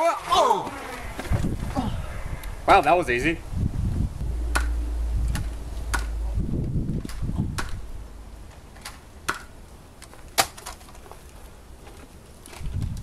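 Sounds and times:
low rumble: 0.7 - 9.7.

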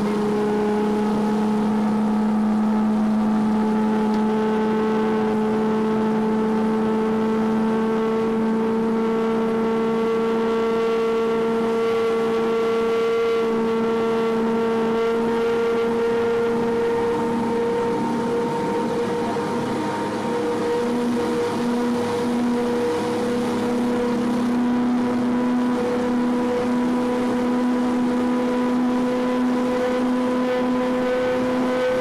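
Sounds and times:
boat engine humming drone: 0.0 - 32.0.

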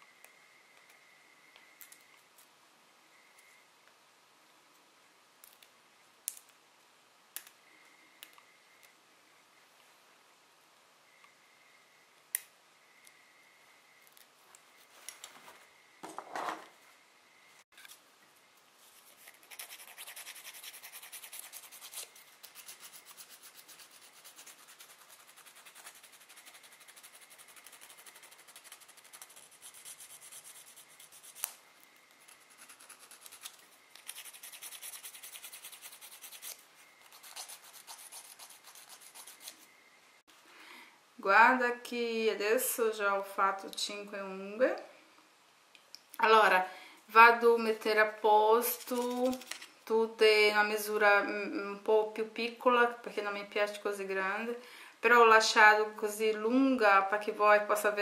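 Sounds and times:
nail file rasping: 19.0 - 31.6, 32.2 - 39.6, 48.7 - 49.7.

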